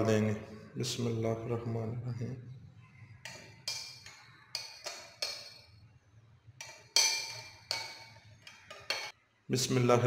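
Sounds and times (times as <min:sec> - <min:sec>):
metal spoon clinking in ceramic mug: 0:03.2 - 0:05.8, 0:06.6 - 0:09.2.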